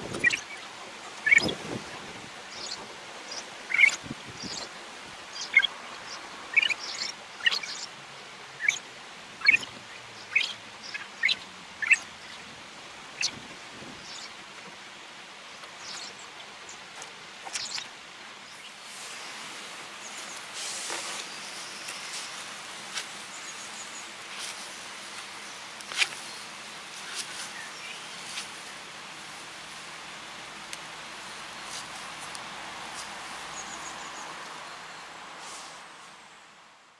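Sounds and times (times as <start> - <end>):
hands kneading wet soil: 18.7 - 34.6.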